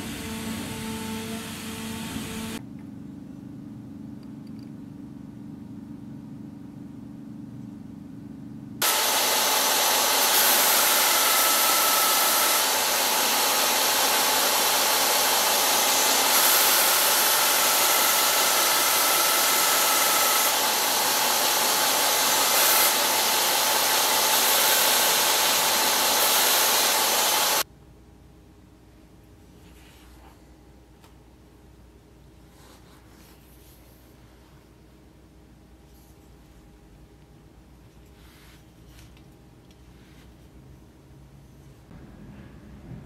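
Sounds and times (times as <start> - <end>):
belt grinder grinding steel: 8.8 - 27.6.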